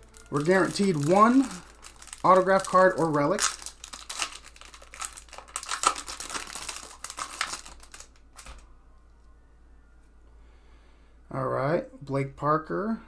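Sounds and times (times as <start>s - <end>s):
foil wrapper crinkling: 0.0s - 8.6s.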